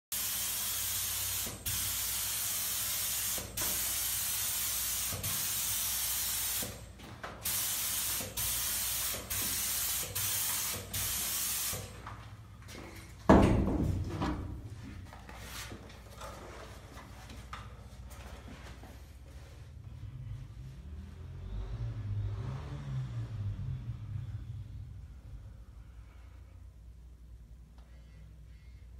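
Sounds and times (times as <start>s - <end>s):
air spray gun hissing: 0.1s - 6.8s, 7.4s - 12.0s.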